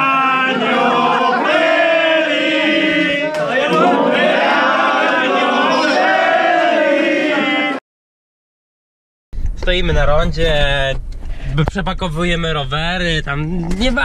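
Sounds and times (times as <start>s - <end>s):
group of people singing a chant: 0.0s - 7.8s.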